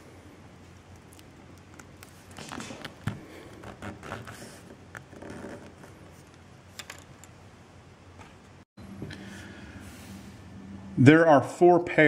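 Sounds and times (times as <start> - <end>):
cable handling clicks and rustles: 0.8 - 7.4.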